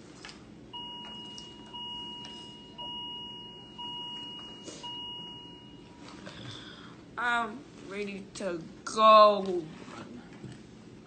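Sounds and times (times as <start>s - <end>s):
equipment alarm beeping: 0.7s - 6.1s.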